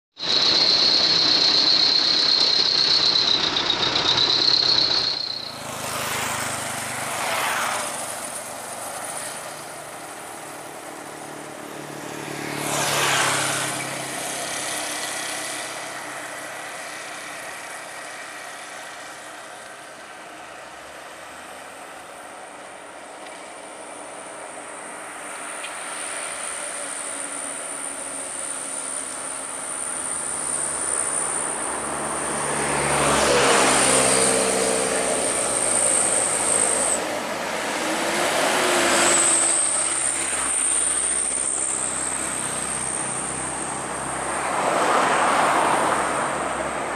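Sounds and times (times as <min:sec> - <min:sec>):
high wavering whine: 0:00.2 - 0:06.0, 0:23.0 - 0:32.5, 0:33.8 - 0:44.3
diesel trucks passing uphill: 0:00.2 - 0:46.9.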